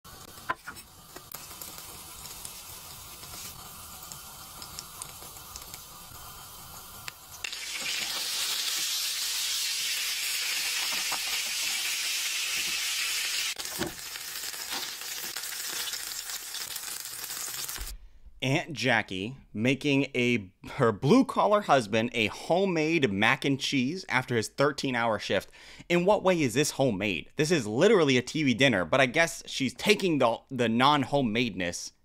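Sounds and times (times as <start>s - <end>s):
food sizzling in a pan: 0.1s - 18.0s.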